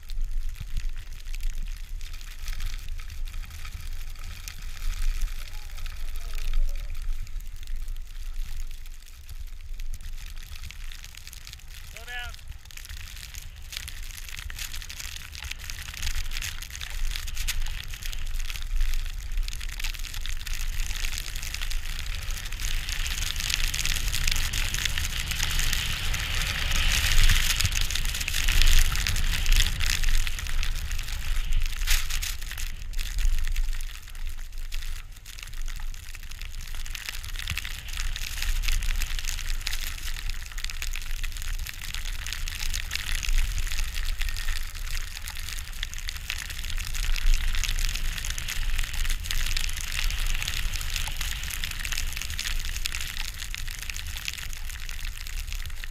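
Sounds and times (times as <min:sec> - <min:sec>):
skis hissing through powder snow: 0:02.2 - 0:08.5, 0:20.5 - 0:34.6, 0:46.3 - 0:52.7.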